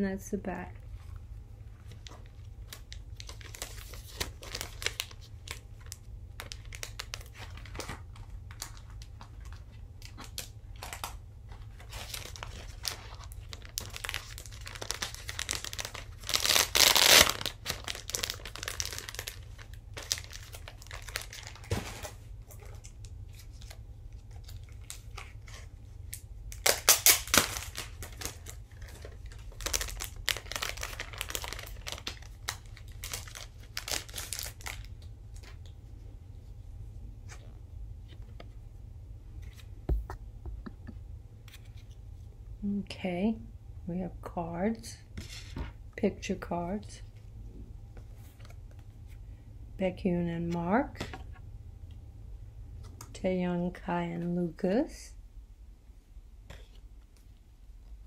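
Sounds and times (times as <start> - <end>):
paper and packaging crinkling: 1.8 - 35.7.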